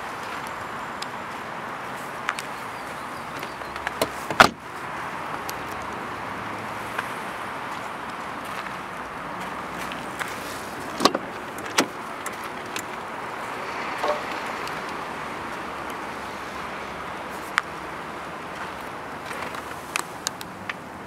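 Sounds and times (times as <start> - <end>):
car door clunk: 4.0 - 4.6, 11.0 - 12.0.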